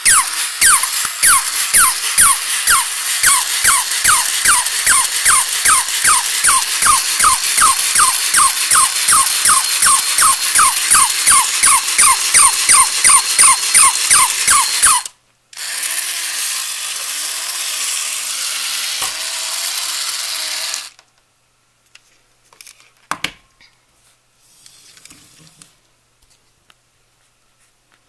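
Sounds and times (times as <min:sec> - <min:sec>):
toy dog yapping barks: 0:00.0 - 0:15.1
toy motor and gears whirring: 0:00.0 - 0:21.0.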